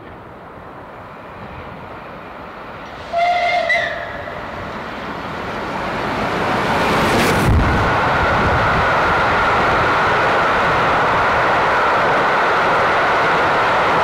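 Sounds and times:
steam train running past: 0.8 - 14.0
steam locomotive whistle: 3.0 - 4.4.

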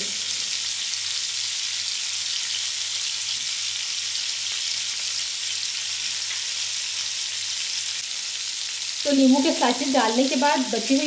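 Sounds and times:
chicken sizzling on a griddle: 0.0 - 11.0.

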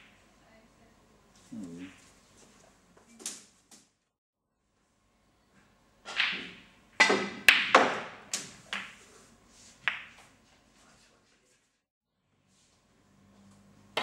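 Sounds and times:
snooker balls clacking: 6.0 - 9.1, 9.8 - 10.3.

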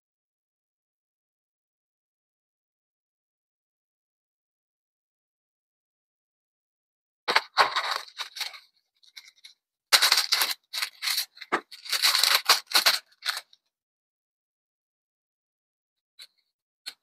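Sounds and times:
packaging crinkling and rustling: 7.3 - 13.6.

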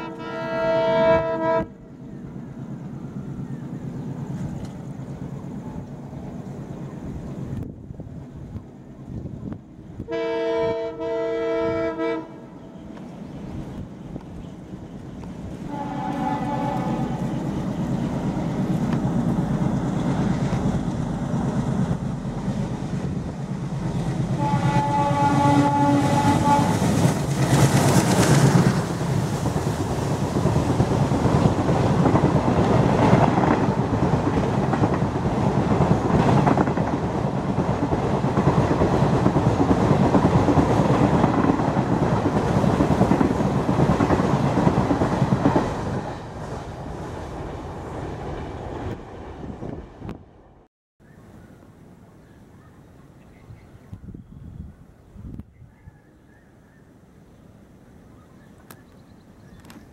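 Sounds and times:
train horn blast: 0.0 - 1.9, 10.0 - 12.8, 15.6 - 17.4, 24.3 - 27.1
diesel locomotive engine throbbing: 0.0 - 50.7
train rumble: 0.0 - 50.7.

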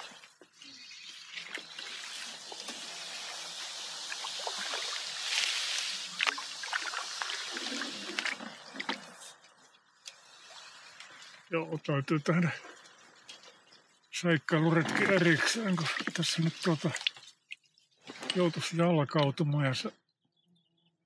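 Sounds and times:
water splashing off paddle: 1.4 - 9.3.

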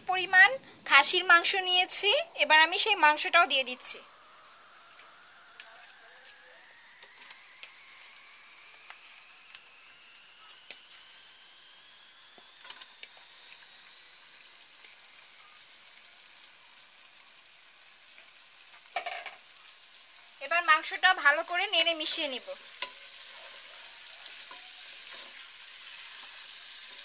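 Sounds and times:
faint rising whine: 0.0 - 17.9
oil sizzling in pot: 0.0 - 27.0.

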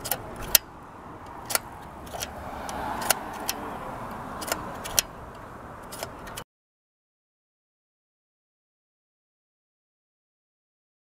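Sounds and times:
vehicle passing: 0.0 - 6.4
street traffic: 0.0 - 6.5
slide viewer clicking: 1.3 - 3.7, 4.4 - 6.4.

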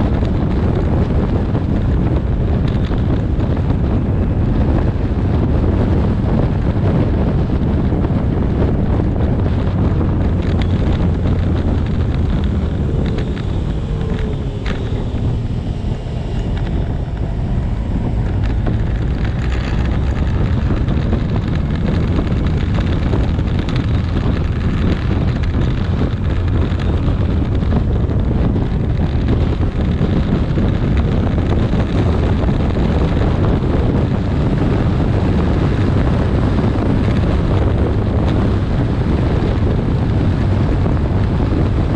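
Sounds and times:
wind rush on microphone: 0.0 - 41.9
low steady drone: 8.7 - 35.2.

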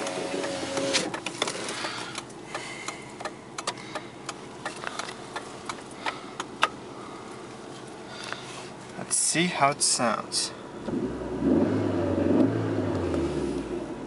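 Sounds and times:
power window motor whining: 0.0 - 1.8.

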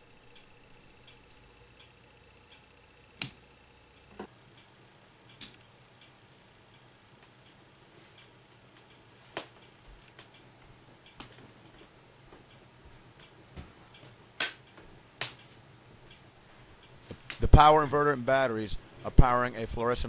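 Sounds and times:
sharp clicks: 0.0 - 4.7, 5.3 - 7.3
faint low hum: 0.0 - 20.0.

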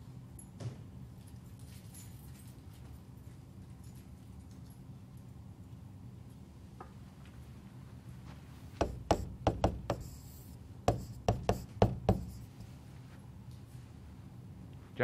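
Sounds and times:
low steady hum: 0.0 - 15.0
stylus tapping on tablet screen: 8.8 - 12.4.

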